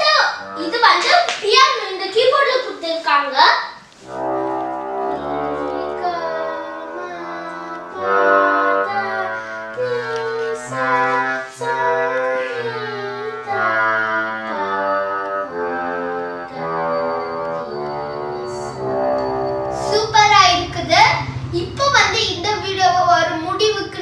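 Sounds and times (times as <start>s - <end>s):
electronic keyboard melody: 4.0s - 24.0s.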